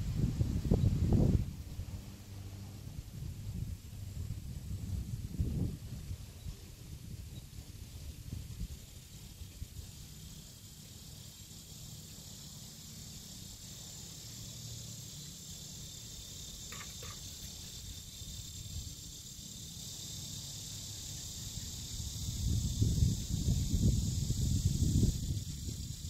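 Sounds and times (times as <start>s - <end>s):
high insect drone: 0.0s - 26.0s.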